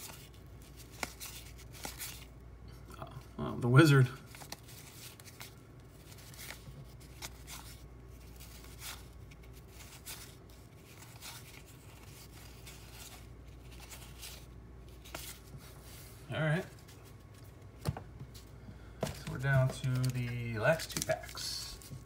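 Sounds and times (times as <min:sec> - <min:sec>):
cardboard cards sliding: 0:04.3 - 0:16.2.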